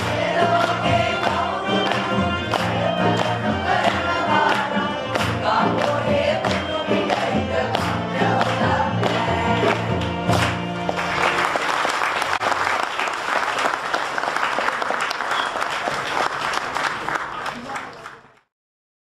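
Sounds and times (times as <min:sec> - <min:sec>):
group of voices singing: 0:00.0 - 0:10.5.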